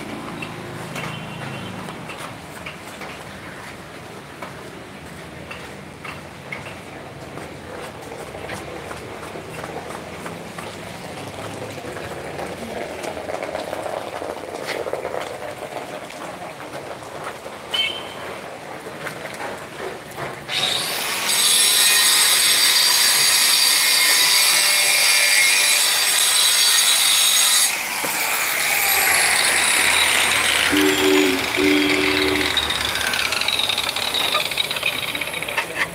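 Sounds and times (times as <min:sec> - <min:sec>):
rain: 0:10.4 - 0:20.3.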